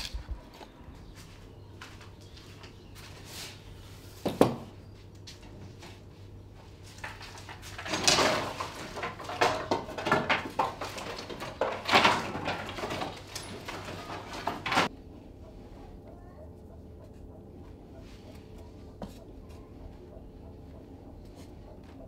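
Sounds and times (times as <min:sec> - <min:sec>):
firewood clattering and scraping: 0:06.8 - 0:14.9.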